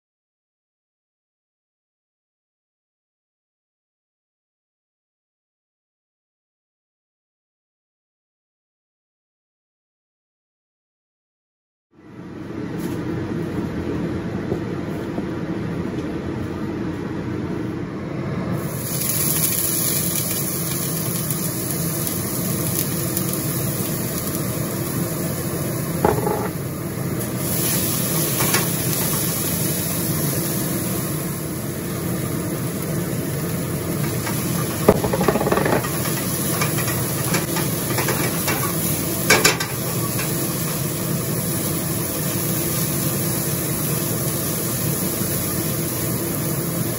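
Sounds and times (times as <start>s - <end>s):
oil sizzling in a wok: 18.6s - 46.9s.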